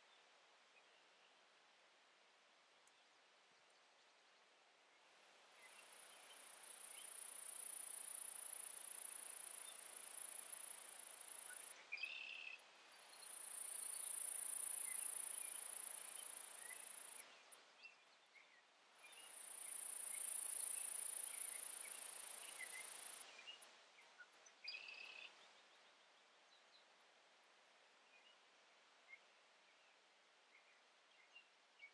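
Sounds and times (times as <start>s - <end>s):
insect ticking: 6.0s - 11.7s, 13.1s - 17.2s, 19.3s - 23.2s
insect trilling at high pitch: 6.4s - 11.7s, 13.3s - 17.2s, 19.4s - 23.2s.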